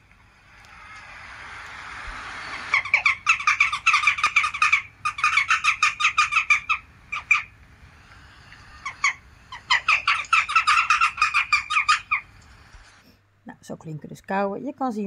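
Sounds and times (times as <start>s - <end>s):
jackdaw calls: 0.3s - 13.1s.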